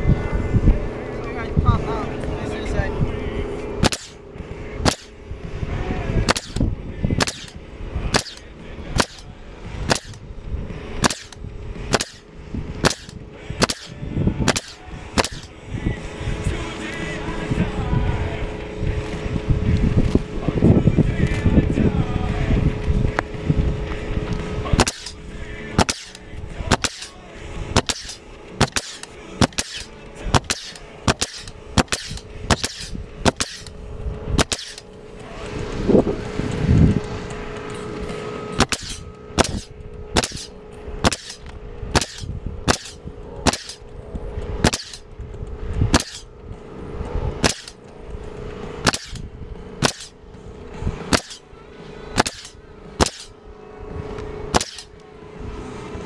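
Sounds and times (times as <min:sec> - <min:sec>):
low hum: 0:00.0 - 0:56.0
nail gun firing: 0:03.8 - 0:04.2, 0:04.8 - 0:05.2, 0:06.3 - 0:10.2, 0:11.0 - 0:15.5, 0:24.8 - 0:25.2, 0:25.8 - 0:27.2, 0:27.8 - 0:33.7, 0:34.4 - 0:34.9, 0:38.6 - 0:43.8, 0:44.6 - 0:45.1, 0:45.9 - 0:46.3, 0:47.4 - 0:47.8, 0:48.8 - 0:50.2, 0:51.1 - 0:51.5, 0:52.2 - 0:53.4, 0:54.5 - 0:55.0.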